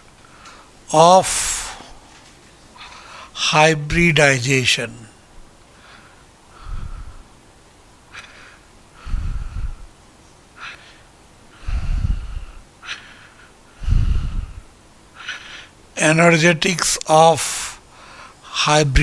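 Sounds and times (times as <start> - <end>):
man breathing out through nose: 5.8 - 7.3, 8.2 - 9.9, 10.6 - 15.8.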